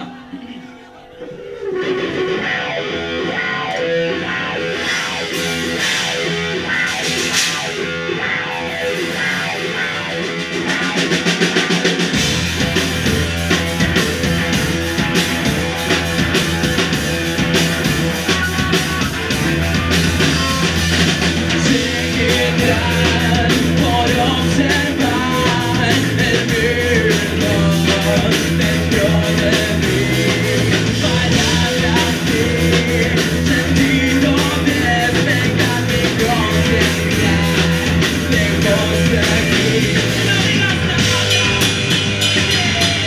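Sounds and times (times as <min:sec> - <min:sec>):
rock band playing live: 0:00.0 - 0:43.0
deep bass low end: 0:12.2 - 0:43.0.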